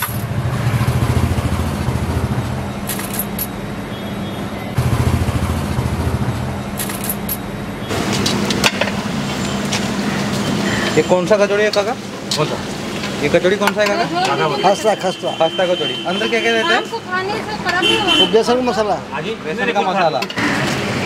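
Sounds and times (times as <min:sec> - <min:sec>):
low rumble of vehicle engines: 0:00.0 - 0:15.2
clicks and clatters: 0:06.8 - 0:07.4.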